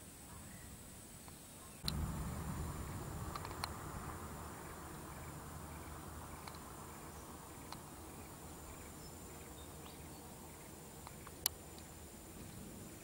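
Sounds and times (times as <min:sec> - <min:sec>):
soft ticks: 0:07.6 - 0:07.9.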